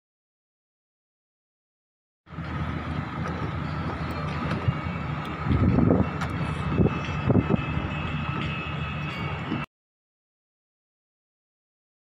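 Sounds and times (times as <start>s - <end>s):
boat engine drone with whine: 2.3s - 9.7s
water rushing against hull: 2.3s - 9.7s
wind noise: 2.4s - 9.7s.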